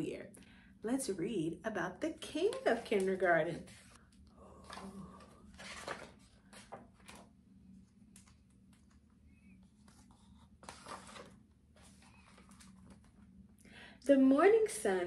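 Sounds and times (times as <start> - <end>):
paper pages rustling: 2.4 - 4.0, 4.7 - 7.3, 7.9 - 13.3.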